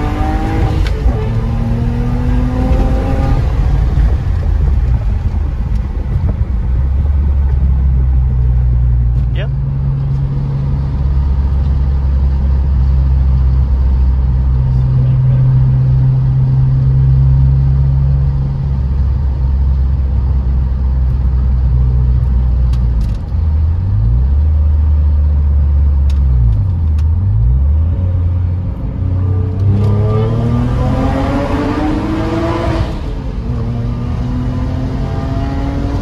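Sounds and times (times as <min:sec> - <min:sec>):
car engine droning: 0:00.0 - 0:36.0.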